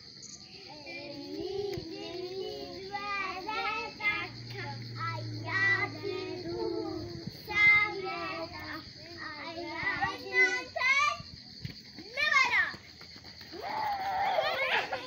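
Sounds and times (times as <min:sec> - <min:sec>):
children singing together: 0:00.5 - 0:11.2.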